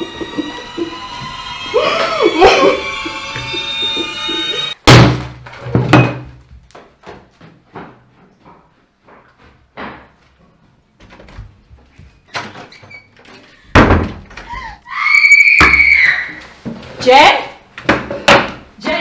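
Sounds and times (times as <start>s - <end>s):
wooden door banging: 13.7s - 14.5s.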